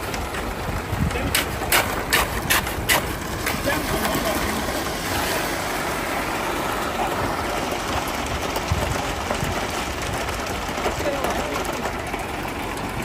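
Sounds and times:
truck engine running steadily: 0:00.0 - 0:13.0.

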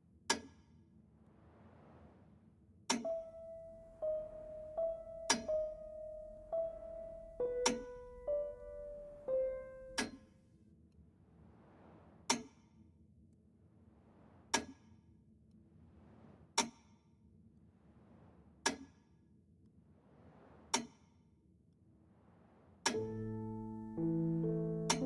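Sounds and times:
metronome ticking: 0:03.0 - 0:10.2, 0:23.0 - 0:25.0.

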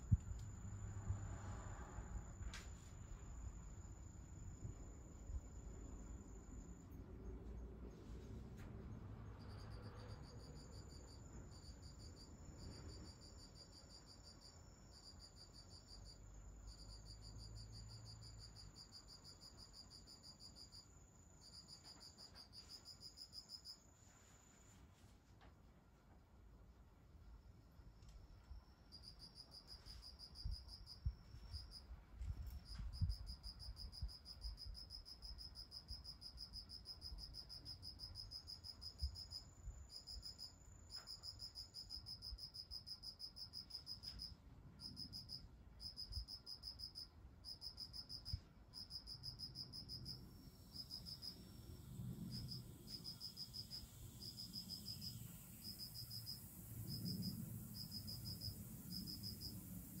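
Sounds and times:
insect trilling and chirping: 0:44.8 - 1:00.0.

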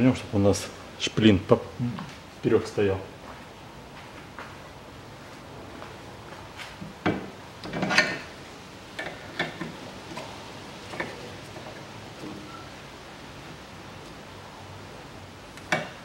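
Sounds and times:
metal suspension parts clinking: 0:07.7 - 0:08.3.

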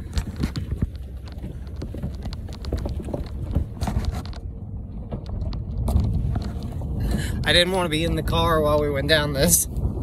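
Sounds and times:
small clicks and knocks: 0:00.0 - 0:04.5
tyres crunching over gravel: 0:00.0 - 0:07.9
truck low rumble: 0:00.0 - 0:10.0.

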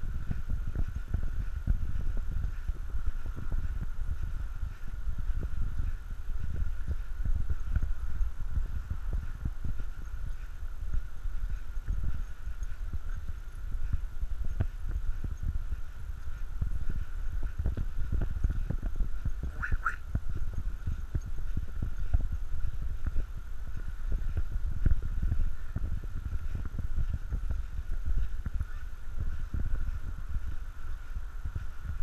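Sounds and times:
footsteps on dirt trail: 0:00.0 - 0:32.0
short high-pitched call: 0:19.5 - 0:20.0.

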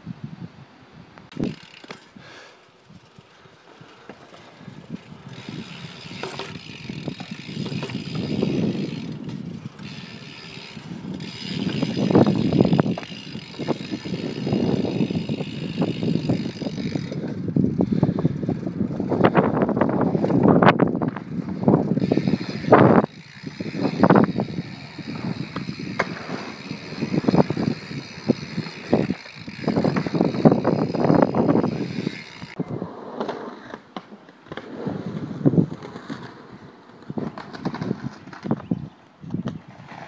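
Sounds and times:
bike clicks and rattles: 0:01.2 - 0:32.7, 0:33.6 - 0:40.0
bike tyres rumbling on concrete: 0:01.3 - 0:40.0.

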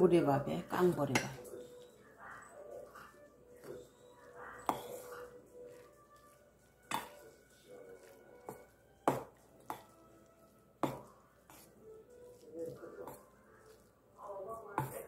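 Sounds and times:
metal spoon clinking on steel bowl: 0:00.8 - 0:10.0.

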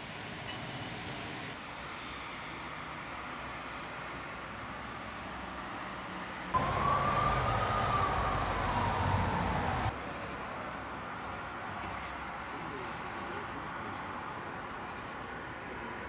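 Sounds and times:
traffic hum: 0:00.0 - 0:16.0
siren wailing: 0:06.6 - 0:09.9.

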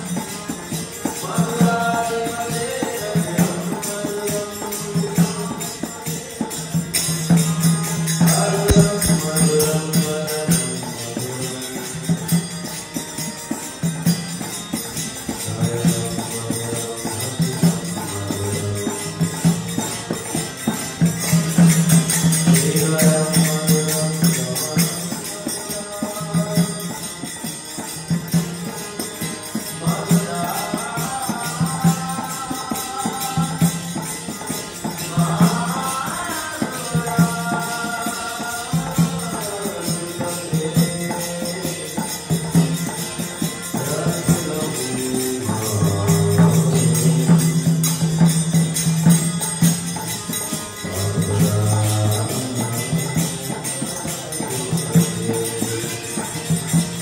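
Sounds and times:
man singing: 0:00.0 - 0:14.5, 0:15.2 - 0:57.0
hand cymbals jingling: 0:00.0 - 0:57.0
harmonium chords: 0:00.0 - 0:57.0
hand drum beating: 0:06.9 - 0:10.9.

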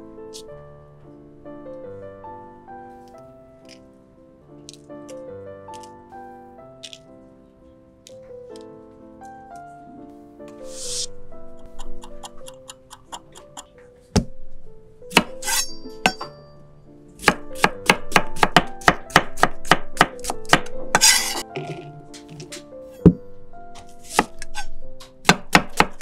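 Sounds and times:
knife chopping on wooden board: 0:17.2 - 0:22.4, 0:24.1 - 0:24.6, 0:25.2 - 0:26.0.

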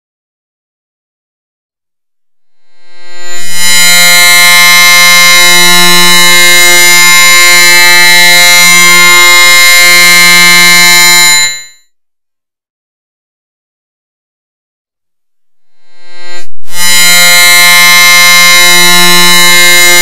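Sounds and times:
harsh electronic buzzing tone: 0:02.4 - 0:11.8, 0:15.4 - 0:20.0.

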